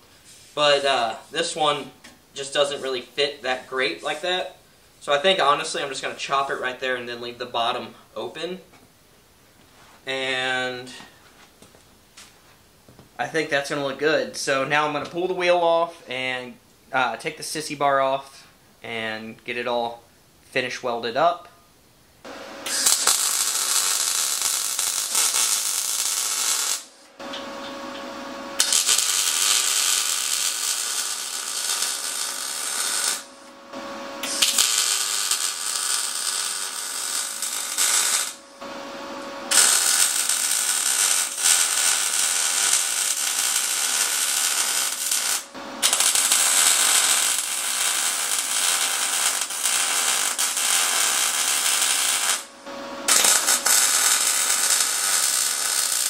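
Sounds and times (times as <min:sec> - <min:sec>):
welder arc crackling: 0:22.6 - 0:28.0, 0:28.6 - 0:56.0.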